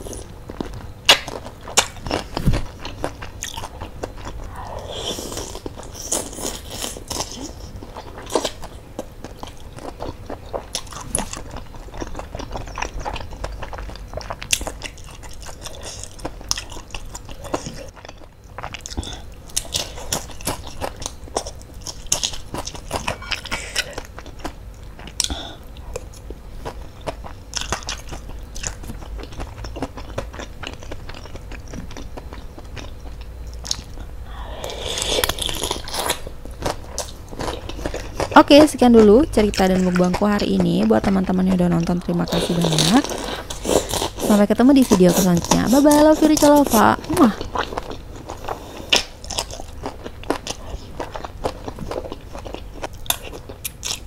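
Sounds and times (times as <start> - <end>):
wet chewing: 0.0 - 54.0.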